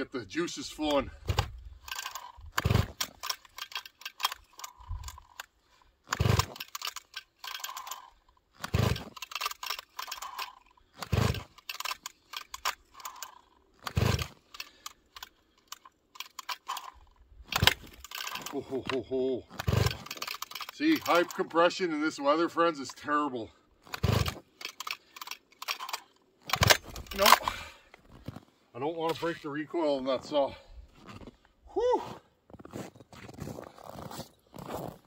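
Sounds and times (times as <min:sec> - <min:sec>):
chainsaw recoil starter pulled: 0:00.3 - 0:23.2, 0:23.8 - 0:28.4
engine turning over: 0:01.2 - 0:05.5, 0:06.1 - 0:18.7, 0:19.5 - 0:21.4, 0:23.9 - 0:27.5.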